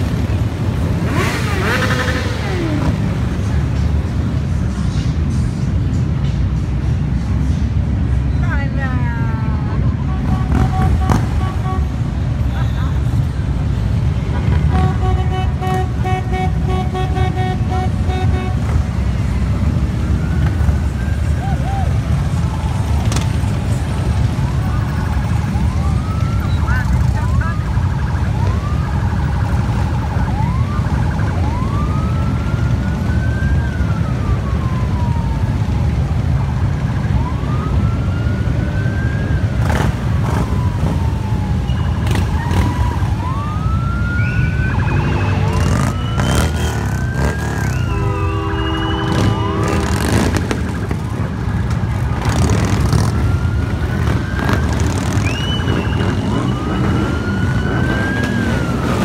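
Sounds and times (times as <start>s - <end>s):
motorcycle engines rumbling: 0.0s - 59.0s
siren wailing: 19.2s - 59.0s.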